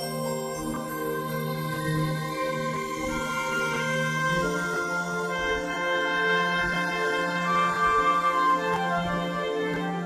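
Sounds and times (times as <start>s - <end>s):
instrumental music with held notes: 0.0s - 10.0s.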